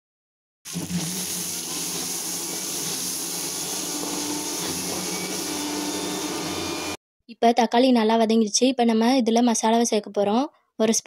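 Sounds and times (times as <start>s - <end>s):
vegetables sizzling in oil: 0.7s - 7.0s.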